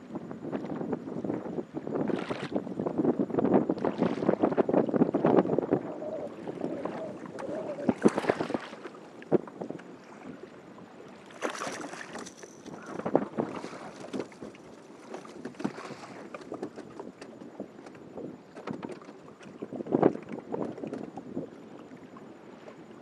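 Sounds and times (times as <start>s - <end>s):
rushing water: 5.7s - 16.8s.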